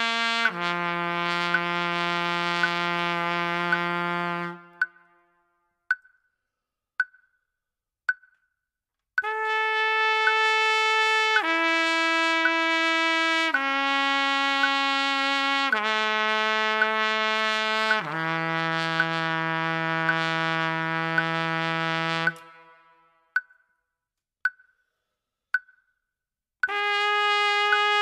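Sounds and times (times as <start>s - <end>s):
metronome ticks: 0.0s - 5.2s, 5.9s - 6.4s, 7.0s - 9.4s, 10.2s - 10.6s, 11.3s - 13.8s, 14.5s - 18.2s, 18.8s - 27.0s, 27.6s - 28.0s
trumpet long tones: 0.0s - 5.6s, 9.2s - 23.3s, 26.7s - 28.0s.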